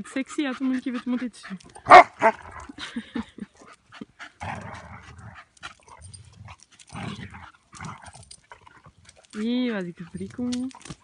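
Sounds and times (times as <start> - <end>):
dogs scuffling: 4.7 - 11.0.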